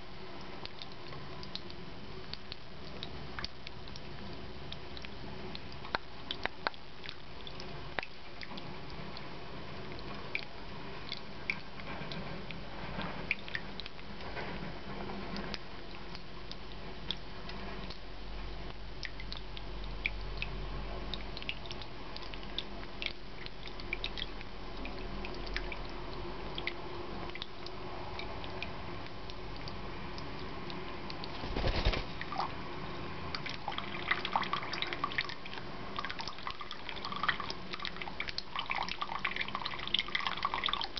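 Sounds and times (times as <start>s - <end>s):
fountain trickling and dripping: 0.0s - 14.6s, 15.2s - 31.4s, 32.2s - 40.9s
low steady hum: 0.0s - 40.9s
small ticks: 0.6s - 9.3s
bird scuffling on fountain: 31.1s - 32.5s.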